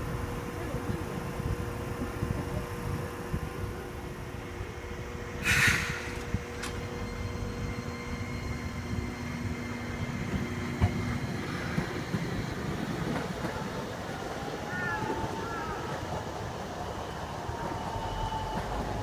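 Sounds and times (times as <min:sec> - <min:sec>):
streetcar wheels rumbling on rail: 0:00.0 - 0:19.0
short loud hiss: 0:05.4 - 0:06.2.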